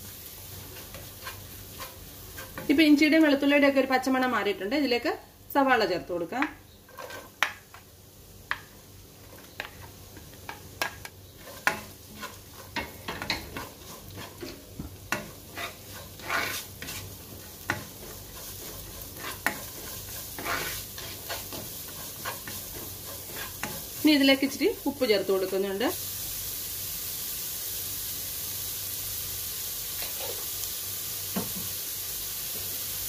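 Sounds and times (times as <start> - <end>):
onions sizzling in oil: 0.0 - 33.0
spatula scraping and tapping pan: 0.6 - 2.8, 6.3 - 24.0.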